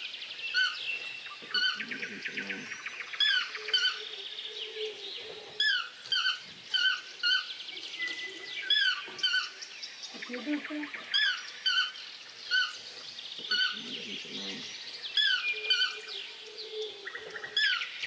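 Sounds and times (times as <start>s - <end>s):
toucan calling: 1.4s - 4.0s, 13.4s - 16.1s.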